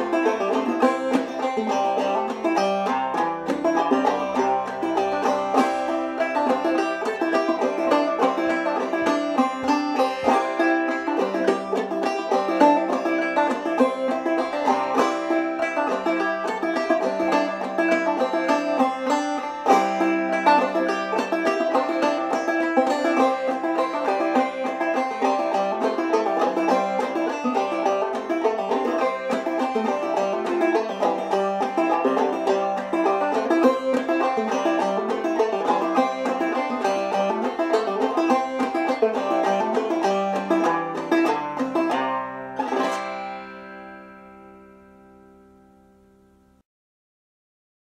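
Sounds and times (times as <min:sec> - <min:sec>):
banjo plucked melody and strums: 0:00.0 - 0:46.6.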